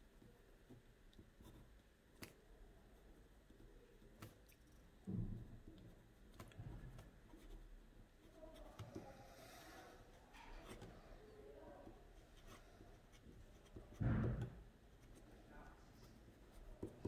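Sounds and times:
pen scratching while writing: 12.1 - 15.3.

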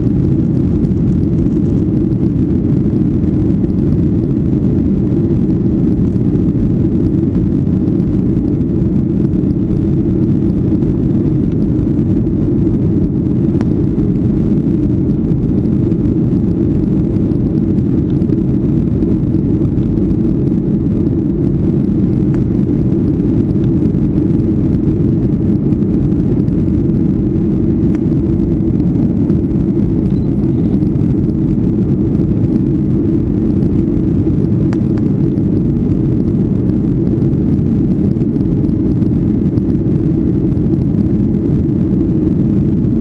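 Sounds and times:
jet engines droning: 0.0 - 43.0
rushing air: 0.0 - 43.0.

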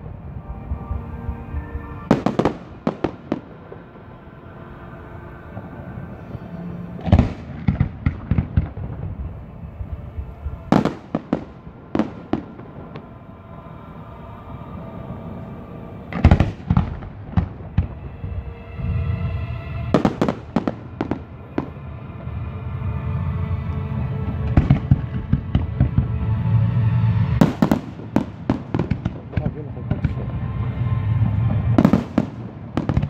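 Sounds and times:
fireworks bursting: 2.0 - 3.9, 10.7 - 13.2, 16.1 - 18.0, 19.9 - 21.8, 27.4 - 30.2, 31.1 - 33.0.

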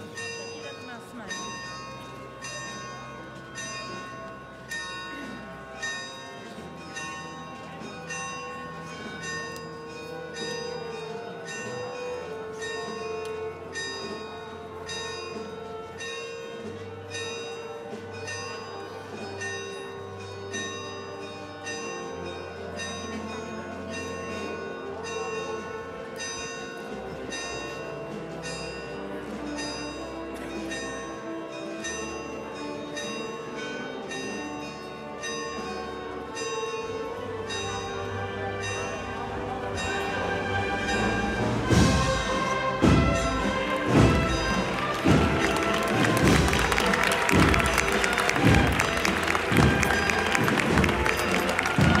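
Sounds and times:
bell-like chimes: 0.0 - 52.0.

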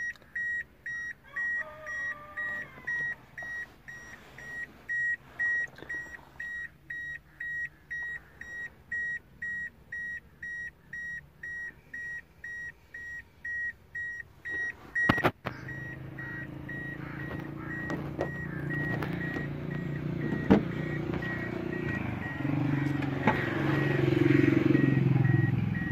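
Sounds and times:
car warning chime beeping: 0.0 - 25.9.

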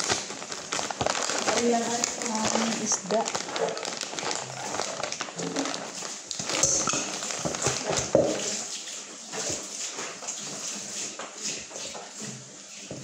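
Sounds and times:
plastic bag crinkling: 0.0 - 8.7.

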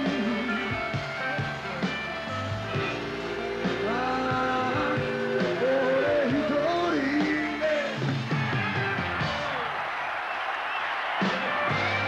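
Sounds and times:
electric guitar lead melody: 0.0 - 7.9
live rock band: 0.0 - 12.0.

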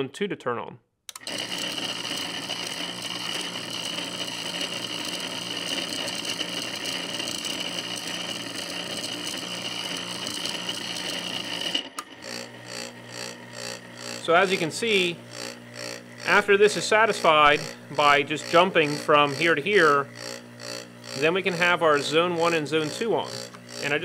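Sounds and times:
pump running with high whine: 1.1 - 24.0.

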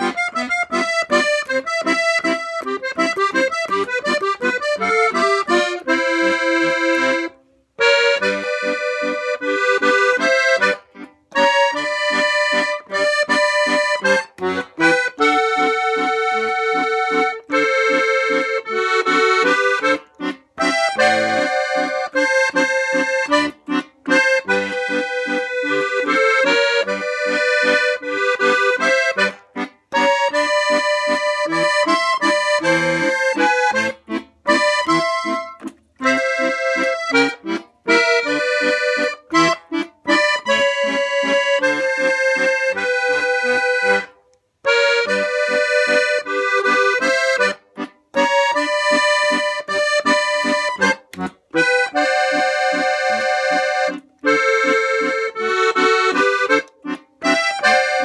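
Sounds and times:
piano accordion: 0.0 - 58.0.

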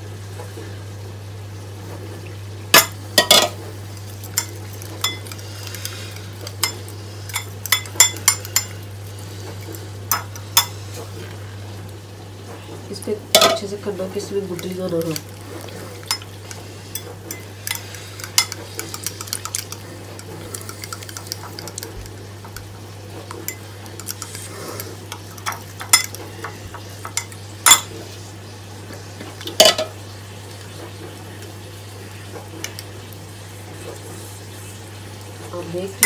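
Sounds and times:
fork clinking against glass: 4.4 - 5.4, 6.6 - 8.8, 16.1 - 16.3, 25.1 - 26.2, 27.0 - 27.9
fork whisking in glass bowl: 4.4 - 8.8, 14.6 - 27.9.

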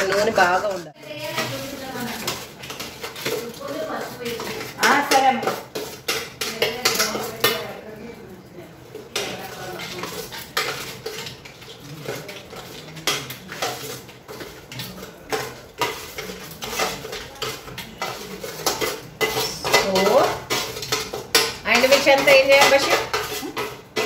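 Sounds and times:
spoon scraping and clinking metal: 0.0 - 7.8, 8.9 - 24.0.

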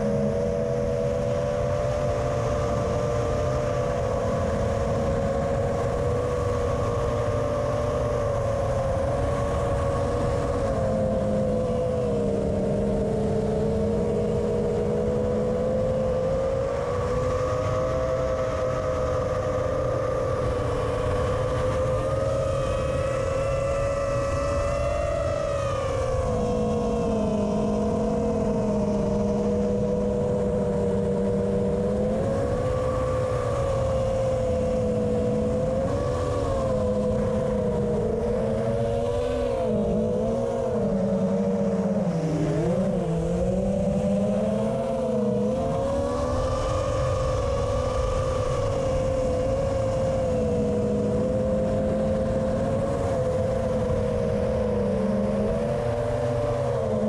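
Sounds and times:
drone propellers whining: 0.0 - 57.0
low wind rumble: 0.0 - 57.0.

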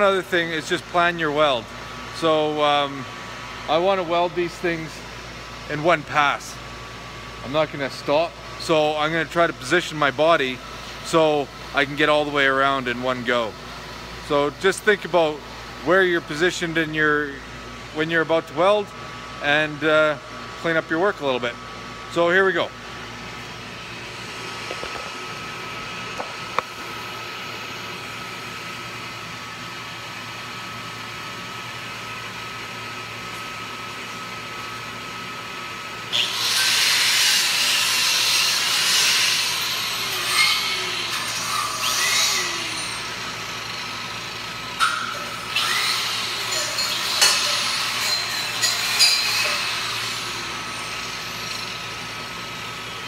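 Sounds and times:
shop hum: 0.0 - 53.0
angle grinder grinding steel: 36.1 - 52.3.

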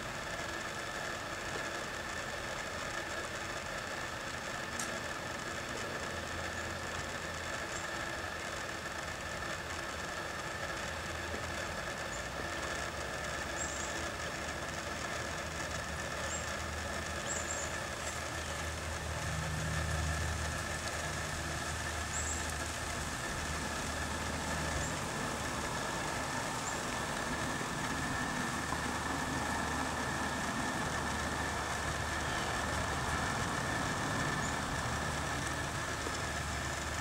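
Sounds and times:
distant traffic hum: 10.7 - 37.0
creek water flowing: 16.6 - 37.0.

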